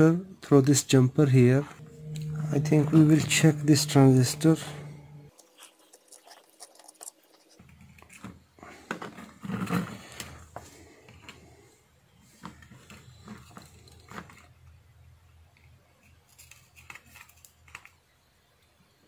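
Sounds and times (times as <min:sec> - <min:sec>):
rough low sound: 0:01.3 - 0:05.3.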